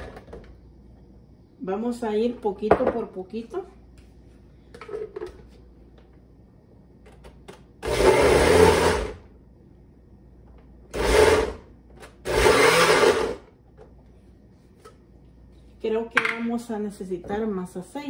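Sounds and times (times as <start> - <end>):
blender chopping garlic: 7.8 - 9.2, 10.9 - 13.5.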